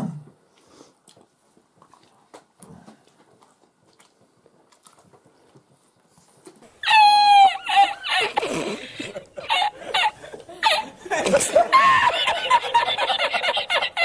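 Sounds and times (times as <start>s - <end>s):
person chewing food: 0.5s - 6.8s.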